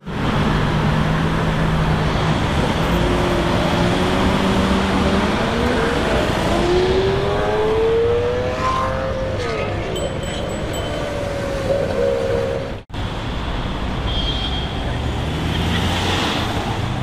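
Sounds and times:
street traffic noise: 0.0 - 17.0
sports car engine accelerating: 2.7 - 9.6.

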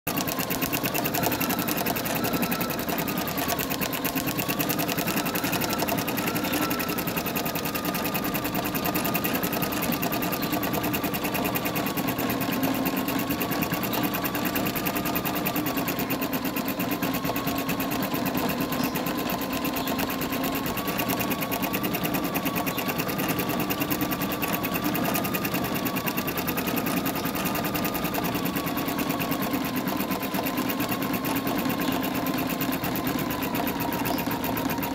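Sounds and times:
motor hum: 0.0 - 34.9
embroidery needle clatter: 0.1 - 15.9
wavering machine whine: 0.1 - 34.9.

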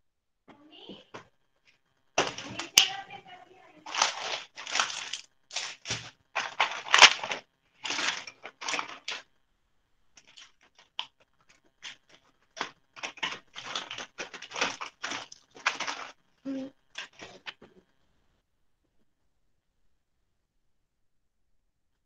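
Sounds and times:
craft materials rustling and crinkling: 0.9 - 9.4, 10.1 - 18.0.

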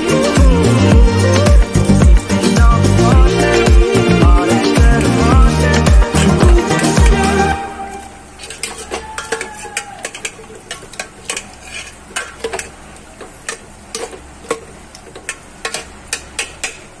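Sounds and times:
soft frying sizzle: 0.0 - 17.0
spoon clinking and scraping in pot: 8.4 - 16.9.

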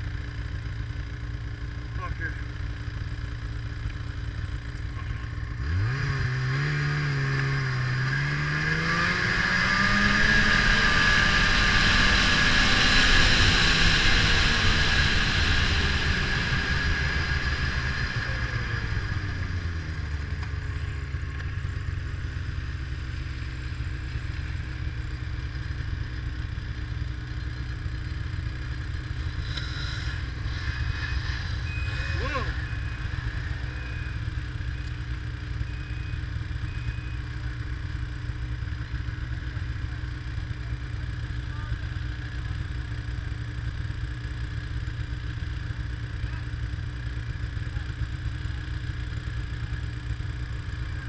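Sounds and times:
snowmobile engine revving: 5.5 - 21.1, 29.2 - 34.9.

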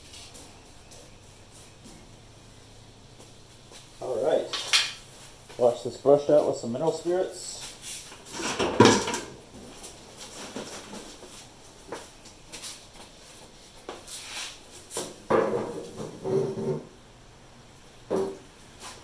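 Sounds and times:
tools and containers clattering: 8.2 - 11.1.

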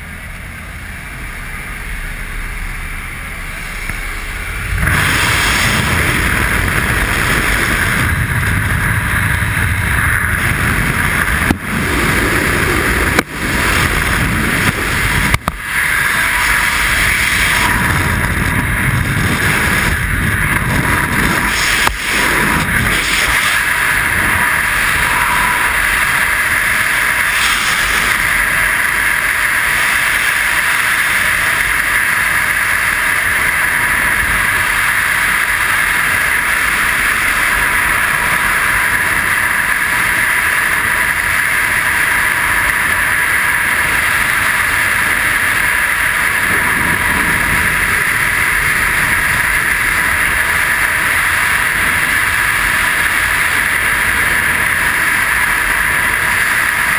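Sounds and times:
freefall wind roar: 0.0 - 56.9.

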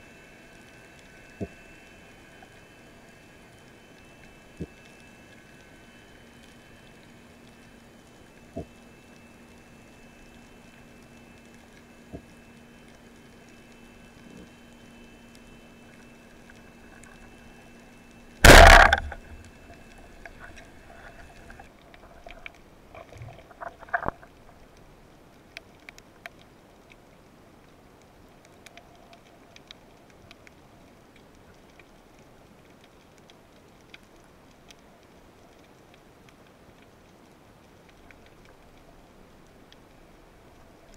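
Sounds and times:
faint steady hum: 0.0 - 40.9
sharp clicks and crackles: 10.2 - 40.9
loud short burst of noise: 18.4 - 19.4.

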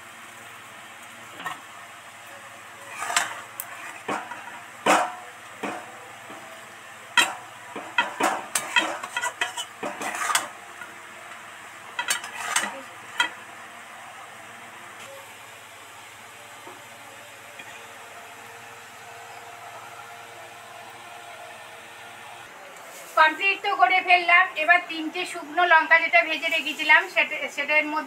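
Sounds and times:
metal spatula scraping a pan: 2.8 - 5.9, 7.2 - 10.6, 12.0 - 13.4.

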